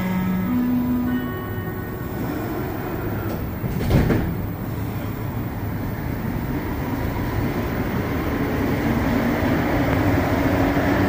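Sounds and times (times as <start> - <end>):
subway train running rumble: 0.0 - 11.0
loud thump: 3.6 - 4.5.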